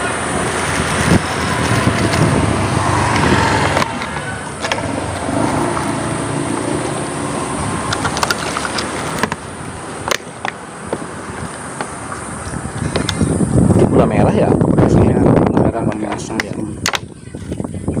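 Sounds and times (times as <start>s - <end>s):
motor vehicle running close by: 0.0s - 14.0s
road traffic noise: 0.0s - 18.0s.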